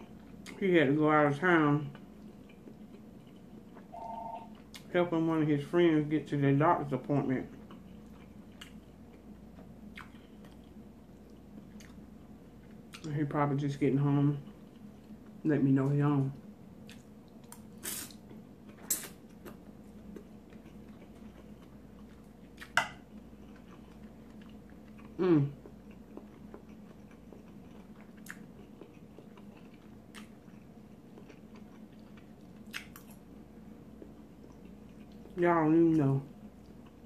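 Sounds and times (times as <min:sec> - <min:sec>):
person chewing food: 0:01.9 - 0:04.9, 0:07.5 - 0:13.1, 0:14.4 - 0:15.4, 0:16.8 - 0:35.4, 0:36.4 - 0:37.0
person humming: 0:25.2 - 0:25.5.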